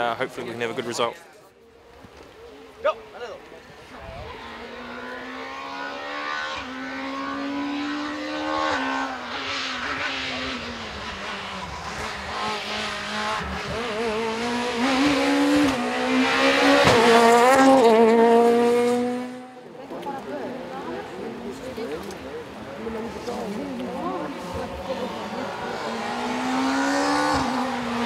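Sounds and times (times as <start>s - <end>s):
rally car engine at high revs: 3.9s - 19.7s, 22.8s - 28.0s.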